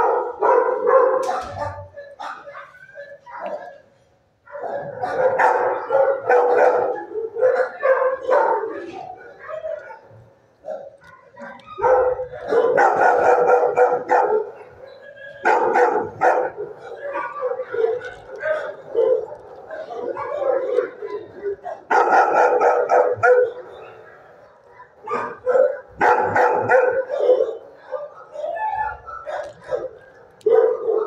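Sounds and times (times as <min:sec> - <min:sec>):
dogs barking: 0:00.0 - 0:31.0.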